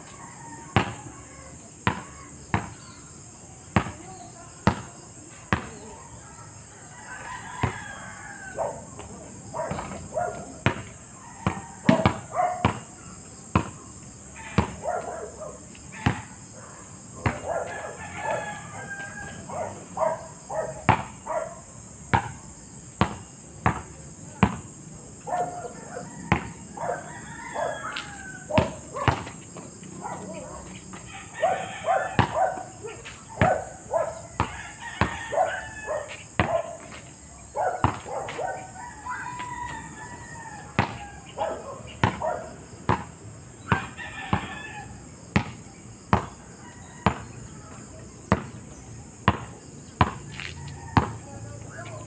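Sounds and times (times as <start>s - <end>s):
rooster crowing: 0.0s - 1.5s, 6.7s - 10.3s, 11.0s - 12.4s, 14.4s - 15.1s, 17.2s - 20.8s, 25.3s - 29.2s, 30.1s - 32.8s, 33.4s - 36.8s, 37.8s - 42.4s, 43.6s - 45.1s, 46.5s - 47.8s, 50.3s - 52.0s
insects buzzing: 0.0s - 52.0s
basketball bouncing on hard court: 1.8s - 2.8s, 3.8s - 4.0s, 4.6s - 4.9s, 5.5s - 5.8s, 10.6s - 12.9s, 13.5s - 13.8s, 14.6s - 14.8s, 16.0s - 16.3s, 17.2s - 17.5s, 20.8s - 21.2s, 22.1s - 22.4s, 23.0s - 24.6s, 26.3s - 26.6s, 28.6s - 29.7s, 32.1s - 32.7s, 34.4s - 35.2s, 36.4s - 36.6s, 37.8s - 38.3s, 40.8s - 41.1s, 42.0s - 42.2s, 42.9s - 43.1s, 43.7s - 44.5s, 45.4s - 46.4s, 47.0s - 47.3s, 48.3s - 48.6s, 49.2s - 50.3s, 51.0s - 51.2s.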